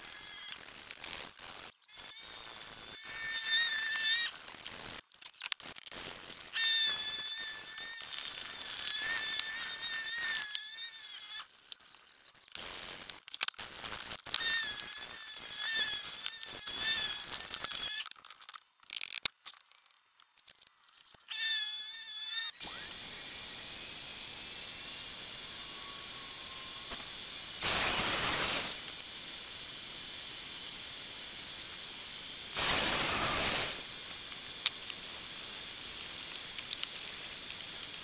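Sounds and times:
clicks and knocks of handling: 18.0 - 21.2
high wavering squeal: 24.1 - 28.8
sandpaper rubbing on wood: 26.9 - 28.8, 32.6 - 33.9.

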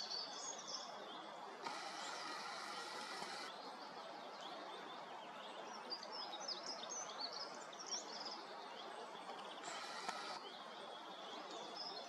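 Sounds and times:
songbirds chirping: 0.0 - 12.0
forest background hiss: 0.4 - 4.2, 9.2 - 11.2.

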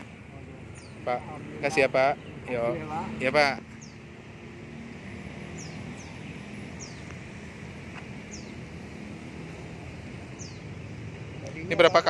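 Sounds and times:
street background noise: 0.0 - 12.0
small bird chirping: 5.5 - 7.5, 8.2 - 8.8, 10.3 - 11.6.

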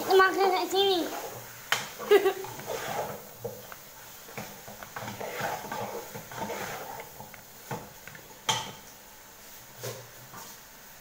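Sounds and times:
fork scraping plastic bowl: 2.0 - 3.6, 4.3 - 7.3.

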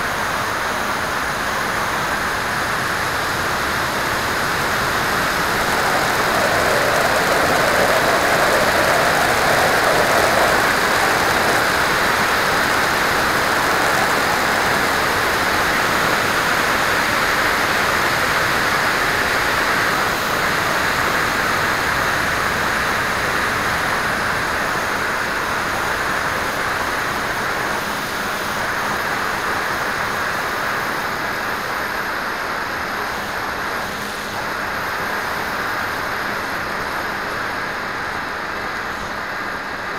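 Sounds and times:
wind buffeting microphone: 2.8 - 18.2.

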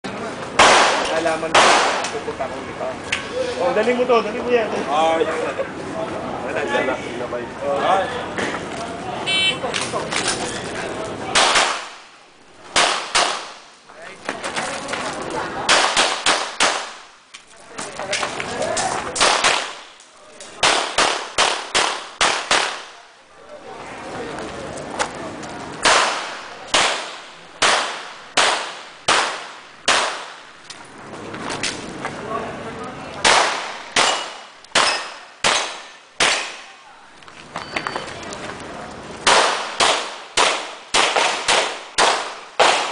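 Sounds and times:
pistol shots echoing: 0.6 - 2.1, 11.3 - 12.0, 12.7 - 13.6, 15.7 - 17.0, 20.6 - 22.9, 25.8 - 30.4, 33.2 - 36.8, 39.2 - 42.9
handgun shots echoing: 33.2 - 36.7.

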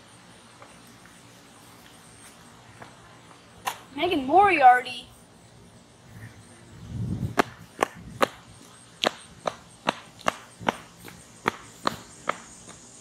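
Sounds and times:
running footsteps on concrete: 7.0 - 12.9.

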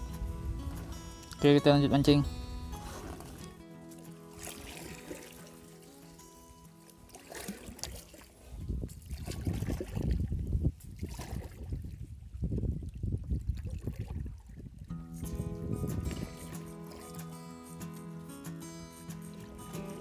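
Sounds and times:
background music: 0.0 - 7.2, 15.0 - 20.0
paddle splashing in water: 2.8 - 12.0, 12.9 - 14.8.

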